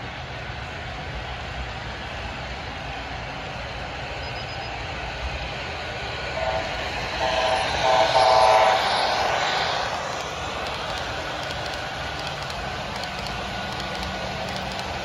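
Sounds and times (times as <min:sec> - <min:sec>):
model train running on track: 0:00.0 - 0:15.0
model train horn blasts: 0:06.4 - 0:08.9.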